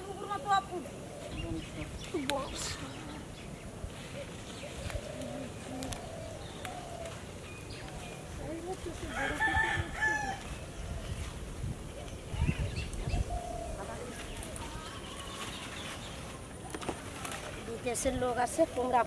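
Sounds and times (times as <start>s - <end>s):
rooster crowing: 9.0s - 10.5s.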